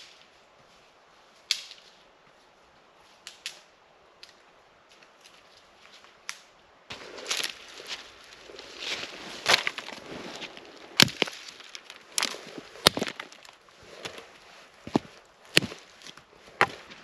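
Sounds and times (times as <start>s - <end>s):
dry sticks snapping: 1.5s - 1.9s, 3.2s - 4.4s, 6.2s - 6.5s, 10.8s - 14.2s, 14.9s - 17.0s
brittle twigs rustling: 5.0s - 17.0s.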